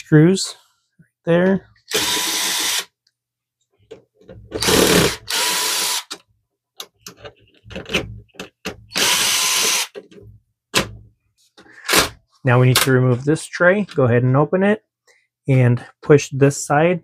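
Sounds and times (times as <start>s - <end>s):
cordless drill running: 1.9s - 2.9s, 4.6s - 6.1s, 8.9s - 9.9s.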